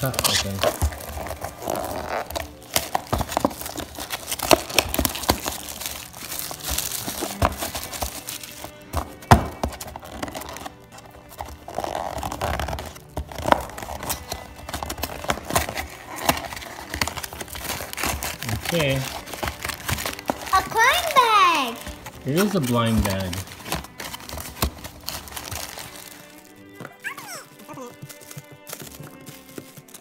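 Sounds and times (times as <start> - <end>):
cardboard tearing: 0.0 - 30.0
fingers scraping and tapping cardboard: 0.1 - 5.6, 6.6 - 20.5, 26.8 - 30.0.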